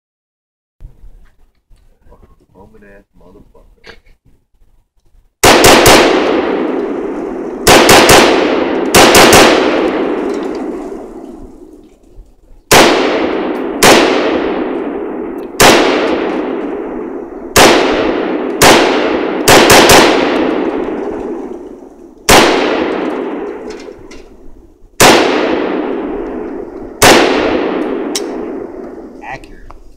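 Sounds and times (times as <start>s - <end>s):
rifle shots echoing: 5.4s - 11.8s, 12.7s - 29.2s.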